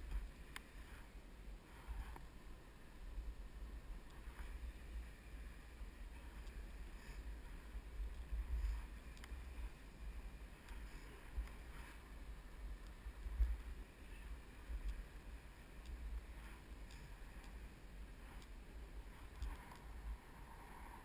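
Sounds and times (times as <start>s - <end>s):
faint clicks: 0.0s - 0.8s, 6.1s - 9.7s, 10.6s - 12.0s, 12.8s - 19.9s
wind rumble on microphone: 0.0s - 21.0s.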